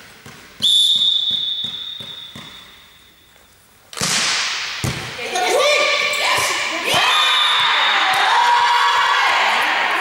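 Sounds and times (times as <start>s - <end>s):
volleyball bouncing on court floor: 0.0s - 2.8s, 3.9s - 5.5s, 6.3s - 8.5s.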